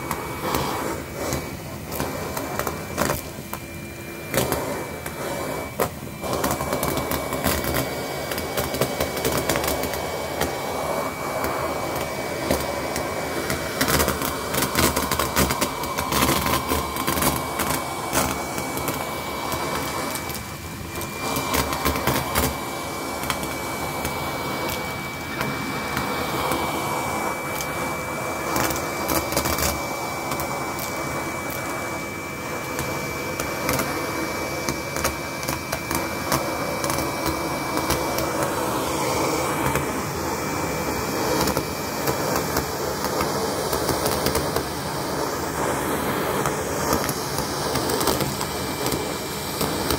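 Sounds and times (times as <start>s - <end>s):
sequins rattling up vacuum tool: 0.0s - 32.0s
vacuum cleaner whining: 0.0s - 49.9s.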